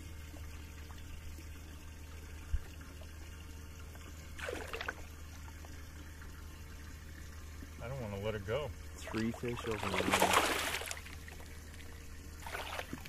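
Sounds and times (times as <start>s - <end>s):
water trickling and lapping: 0.0s - 13.0s
fish splash: 4.4s - 5.1s, 9.0s - 13.0s.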